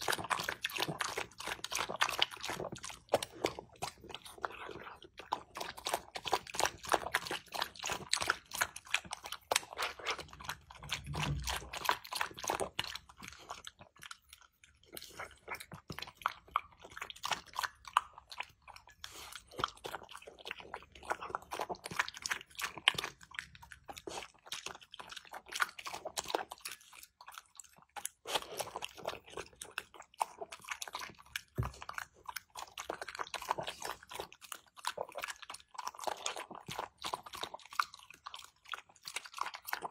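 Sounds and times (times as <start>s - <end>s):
dog chewing and lapping: 0.0s - 39.9s.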